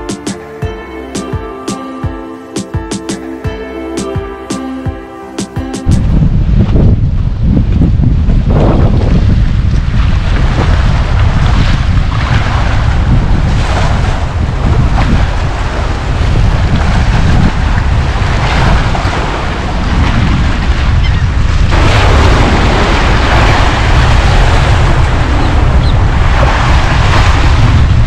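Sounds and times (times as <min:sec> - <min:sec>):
strong wind buffeting microphone: 0:05.8 - 0:28.0
waves splashing against rocks: 0:09.0 - 0:28.0.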